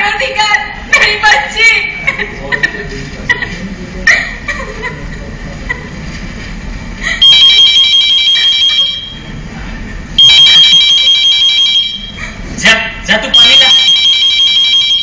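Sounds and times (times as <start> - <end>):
telephone ringing: 13.4 - 15.0.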